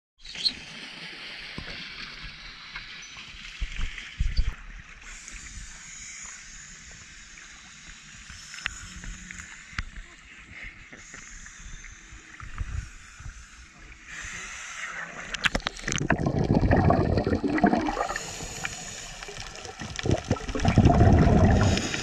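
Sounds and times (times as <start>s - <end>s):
water churning and splashing: 15.3s - 22.0s.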